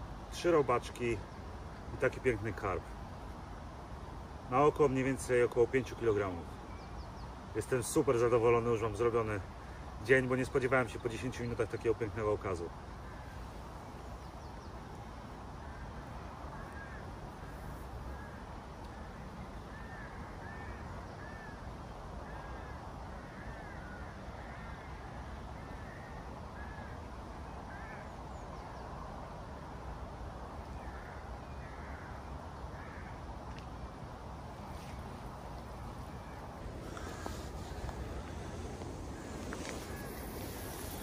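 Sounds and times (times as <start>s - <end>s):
low outdoor rumble: 33.9s - 41.0s.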